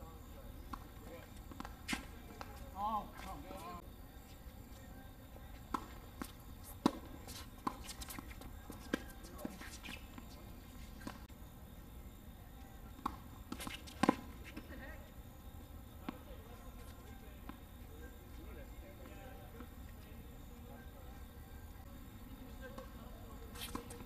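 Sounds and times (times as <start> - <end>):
tennis balls struck with rackets: 5.6 - 10.3
tennis balls bouncing on hard court: 5.6 - 10.4, 12.9 - 14.6.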